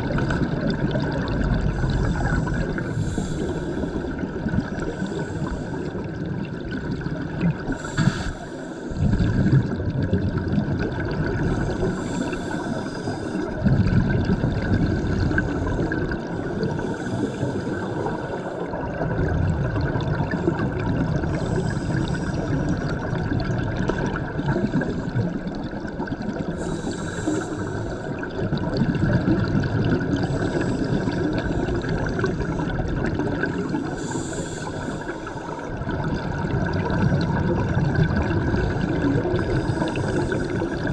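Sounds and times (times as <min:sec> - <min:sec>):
rumble of exhaled bubbles: 0:00.0 - 0:40.9
diver regulator hiss: 0:01.8 - 0:04.2, 0:04.9 - 0:06.0, 0:07.7 - 0:09.0, 0:11.5 - 0:13.5, 0:15.0 - 0:18.7, 0:26.6 - 0:28.2, 0:30.2 - 0:32.7, 0:33.6 - 0:35.7, 0:39.4 - 0:40.9.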